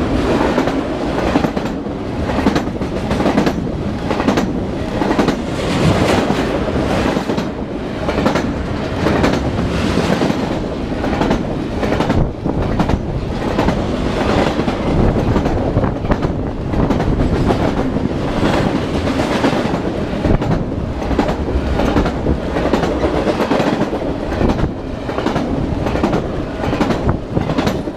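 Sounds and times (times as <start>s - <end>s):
freight train rumbling past: 0.0s - 27.9s
wheels clacking over rail joints: 0.0s - 27.9s.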